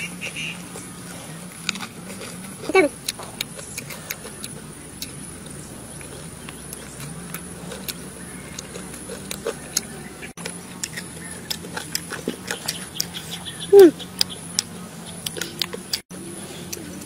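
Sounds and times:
crispy fried chicken chewing: 0.4 - 17.0
lip smacks: 8.6 - 16.0.

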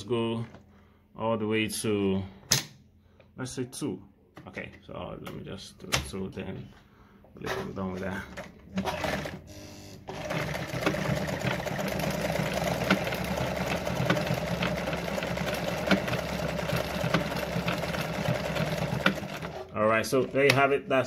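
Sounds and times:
sewing machine running: 8.7 - 20.6.

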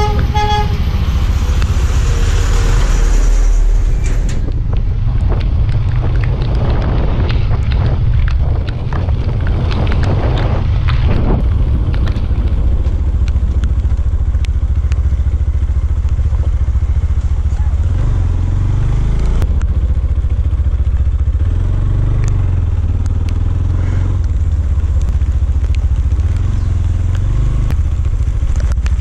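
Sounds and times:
vehicle horn: 0.0 - 1.0
vehicle engine running low: 0.0 - 29.0
wind buffeting microphone: 3.5 - 20.5.

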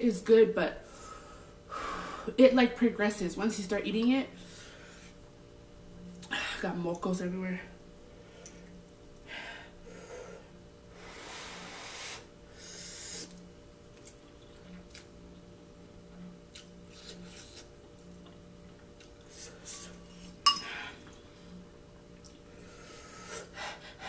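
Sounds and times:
fork clinking ceramic bowl: 20.5 - 20.7.

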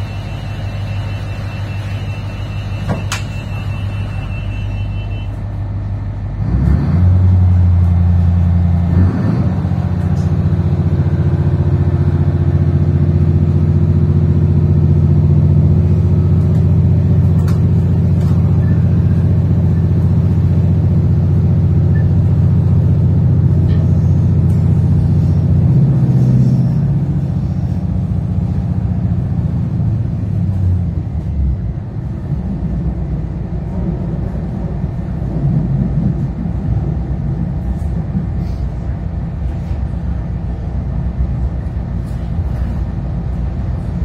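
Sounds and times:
high steady beep: 0.0 - 5.3
diesel railcar engine running: 0.0 - 44.0.

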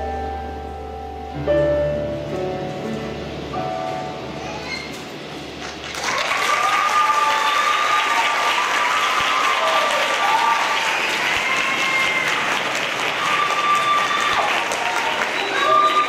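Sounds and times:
audience applauding: 5.6 - 16.0
audience cheering: 5.8 - 16.0.

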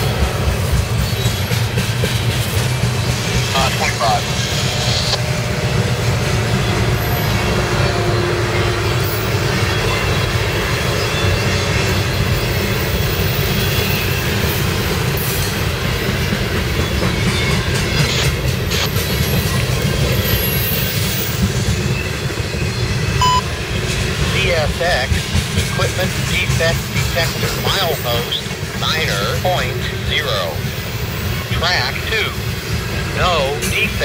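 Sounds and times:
train wheels rumbling on rail: 0.0 - 34.0
high wheel squeals: 19.0 - 23.4.

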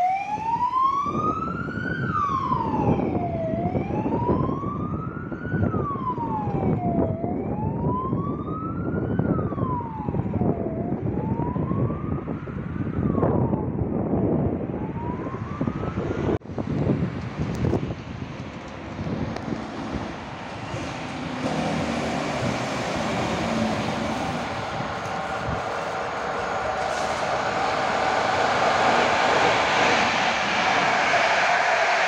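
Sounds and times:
siren wailing: 0.0 - 16.4, 20.5 - 32.0
low rumbling noise: 19.9 - 32.0.

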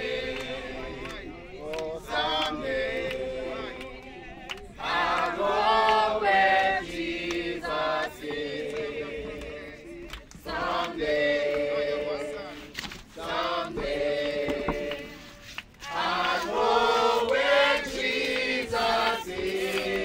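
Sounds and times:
group singing together: 0.0 - 20.0.

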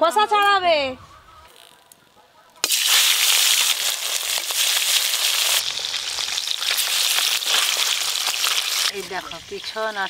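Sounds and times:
fish frying in hot oil: 2.6 - 10.0.

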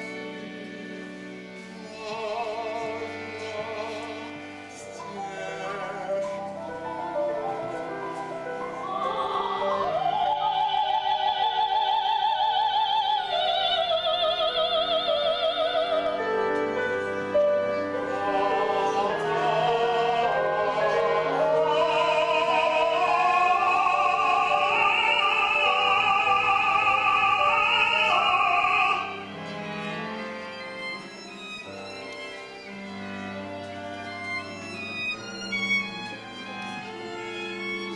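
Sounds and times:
chamber ensemble playing: 0.0 - 37.9
soprano singing with vibrato: 8.3 - 16.3, 18.0 - 29.2.

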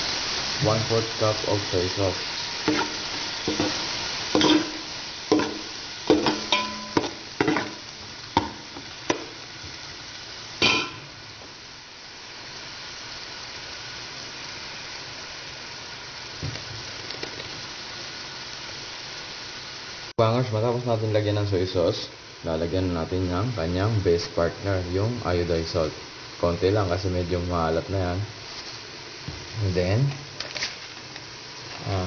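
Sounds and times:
liquid sizzling: 0.0 - 32.0.

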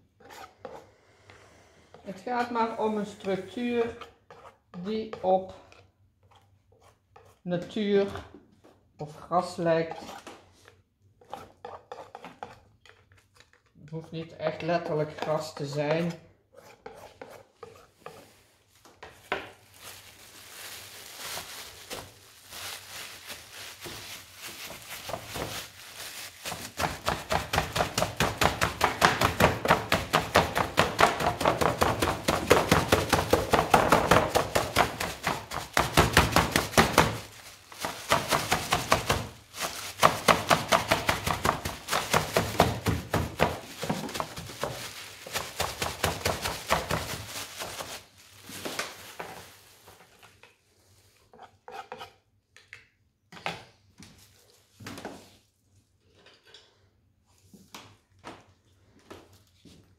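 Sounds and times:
plastic film dabbing wet paint: 18.8 - 49.5.

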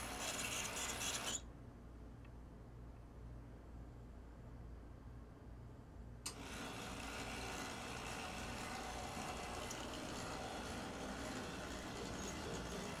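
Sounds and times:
model locomotive motor whirring: 0.0 - 1.4, 6.3 - 13.0.

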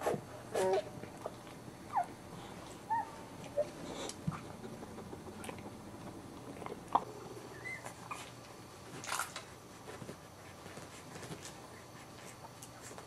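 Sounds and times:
puppies smacking and mouthing: 0.0 - 13.0
puppy squeak: 7.5 - 8.2.

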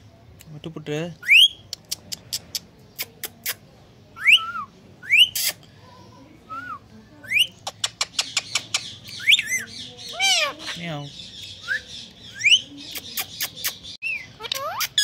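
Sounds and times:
parrot sharp clicks: 7.6 - 9.3.

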